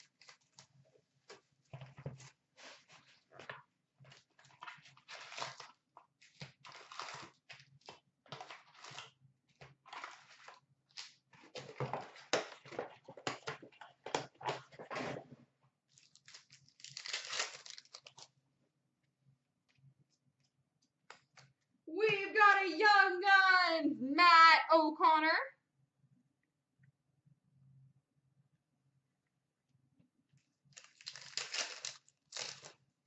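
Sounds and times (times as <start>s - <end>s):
card packs torn open: 6.4s - 7.4s, 16.0s - 18.3s, 30.8s - 32.8s
foil wrappers crinkling: 15.9s - 18.3s, 30.7s - 32.8s.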